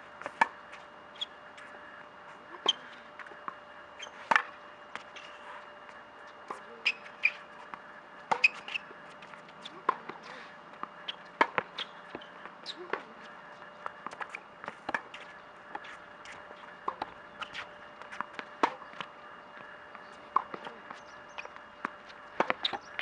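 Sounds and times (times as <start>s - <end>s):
tennis ball hitting rackets: 0.2s - 0.6s, 2.5s - 5.4s, 6.4s - 9.0s, 9.6s - 13.1s, 13.8s - 19.1s, 20.3s - 23.0s.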